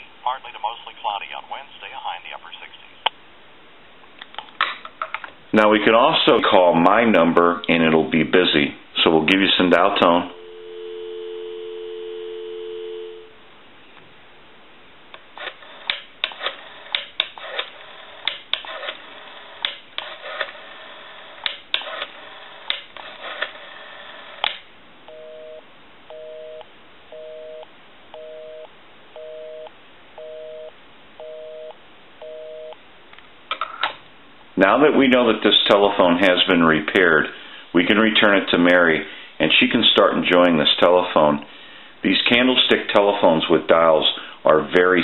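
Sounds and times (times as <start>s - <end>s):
busy signal beeping: 10.3s - 13.4s, 25.1s - 26.6s, 27.2s - 27.6s, 28.2s - 32.8s
telephone dial tone: 10.4s - 13.3s.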